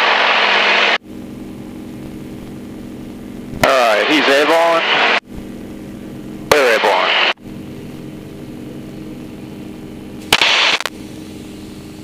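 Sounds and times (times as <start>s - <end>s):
loud burst of noise: 0.0s - 1.0s, 3.6s - 5.3s, 6.5s - 7.4s, 10.2s - 11.5s
radial aircraft engine running: 0.0s - 12.0s.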